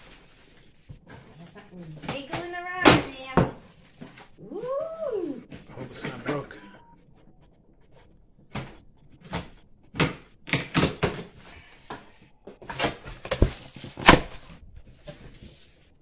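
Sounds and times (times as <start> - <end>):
cardboard box crackling and scraping: 12.6 - 16.0.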